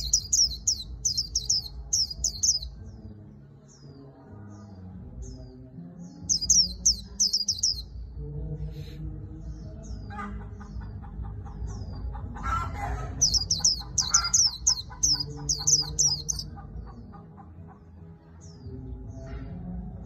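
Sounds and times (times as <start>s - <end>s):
bird warbling: 13.2s - 16.5s.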